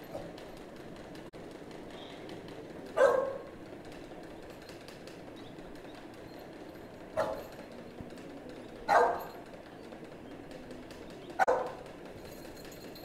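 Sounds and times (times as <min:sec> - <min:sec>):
dog barking: 0:03.0 - 0:03.5, 0:07.2 - 0:07.5, 0:08.9 - 0:09.4, 0:11.4 - 0:11.8.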